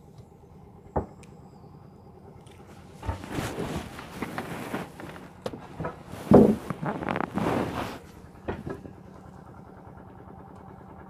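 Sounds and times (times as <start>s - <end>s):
diesel boat engine humming: 0.0s - 11.0s
knocking and rustling on wood: 3.0s - 8.8s.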